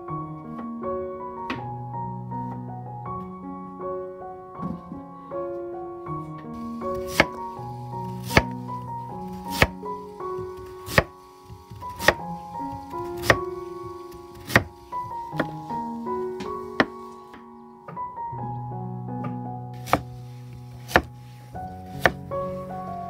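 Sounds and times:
gentle piano music: 0.0 - 23.0
knife slicing on cutting board: 7.0 - 7.4, 9.5 - 9.8, 10.6 - 12.2, 14.4 - 14.7, 19.8 - 21.1.

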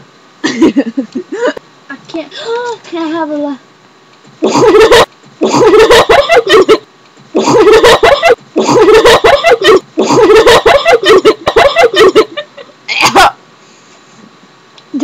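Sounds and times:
hard laughter: 4.4 - 6.8, 7.4 - 13.4.

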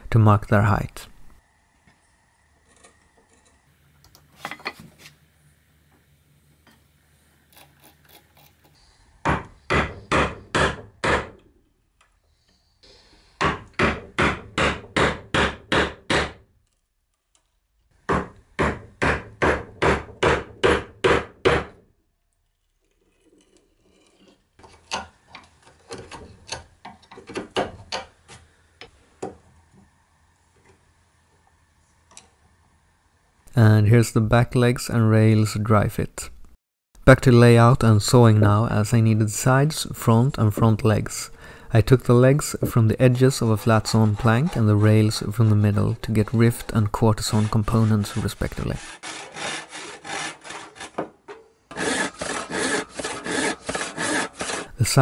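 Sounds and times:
mallet striking chisel into wood: 9.2 - 11.4, 13.4 - 16.4, 18.1 - 21.8.

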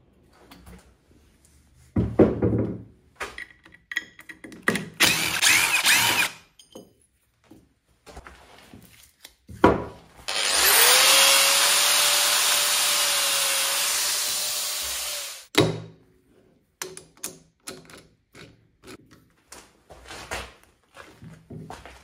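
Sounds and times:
power tool motor running: 5.0 - 6.4, 10.3 - 15.5.

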